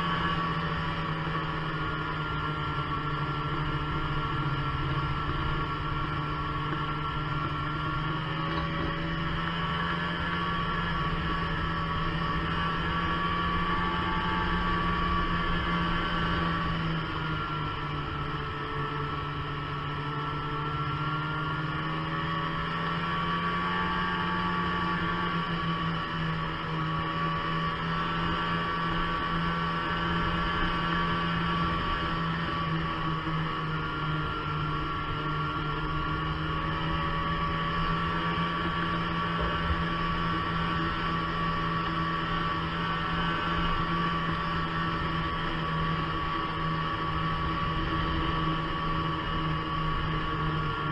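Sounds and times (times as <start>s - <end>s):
snowmobile engine droning: 0.0s - 50.9s
high whine: 34.3s - 50.9s.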